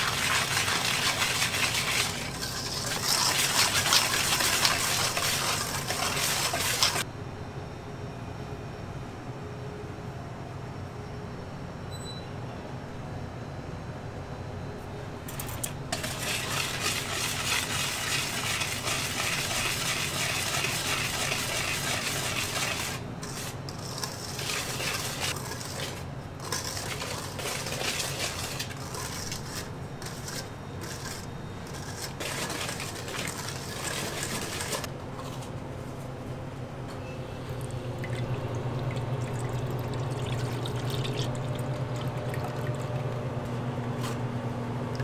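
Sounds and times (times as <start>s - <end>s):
metal utensils scraping and clinking: 0.0s - 7.0s, 15.3s - 35.3s.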